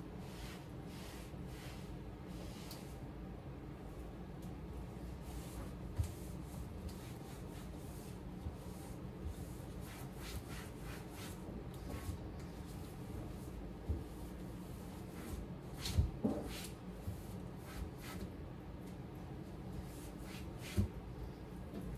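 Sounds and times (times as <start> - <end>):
cloth wiping cabinet doors: 0.2 - 3.0, 5.0 - 18.3, 19.8 - 21.0.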